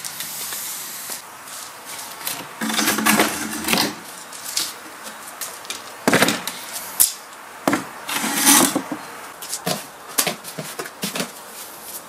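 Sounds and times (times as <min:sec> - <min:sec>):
wooden knocks on paving stones: 0:06.1 - 0:06.5, 0:07.7 - 0:07.9.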